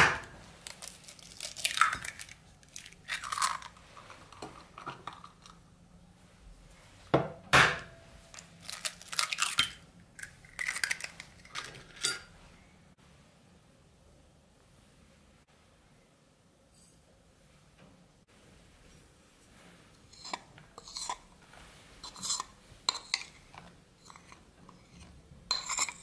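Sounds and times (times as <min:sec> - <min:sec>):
eggshell crackling: 0:00.5 - 0:05.6, 0:08.4 - 0:11.6.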